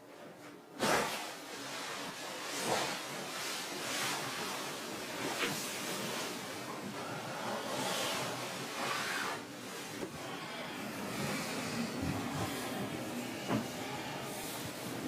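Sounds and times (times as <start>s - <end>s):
bedding rustling: 8.2s - 15.0s.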